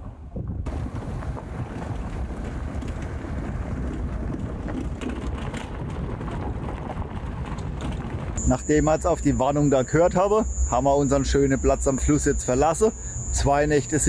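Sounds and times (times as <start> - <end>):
wind buffeting microphone: 0.0 - 8.4
vehicle rumbling on dirt road: 0.0 - 14.0.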